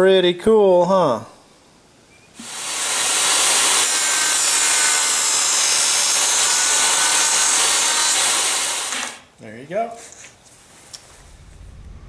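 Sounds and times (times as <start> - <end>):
power tool motor whining: 2.4 - 5.4, 6.2 - 9.2.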